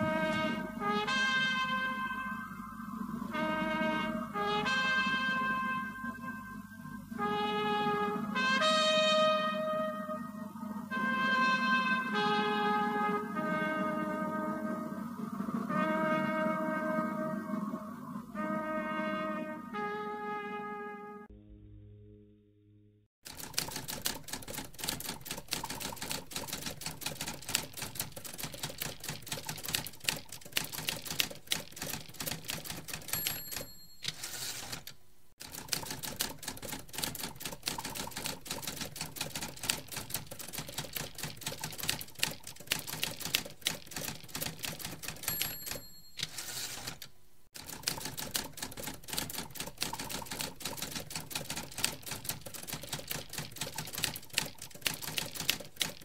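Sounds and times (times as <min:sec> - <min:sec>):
typewriter carriage return: 0:23.3 - 0:56.0
typewriter keystrokes clattering: 0:23.3 - 0:56.0
typewriter bell ding: 0:32.5 - 0:34.9, 0:44.6 - 0:47.0.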